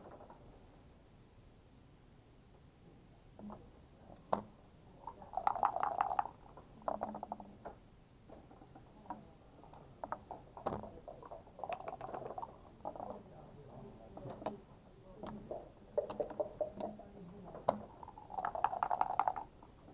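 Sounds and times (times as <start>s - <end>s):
dice rattling and clattering: 5.2s - 7.4s, 10.6s - 13.1s, 17.7s - 19.6s.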